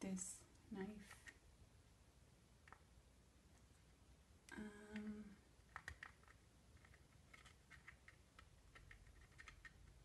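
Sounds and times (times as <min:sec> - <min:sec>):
person humming: 0:04.5 - 0:05.4.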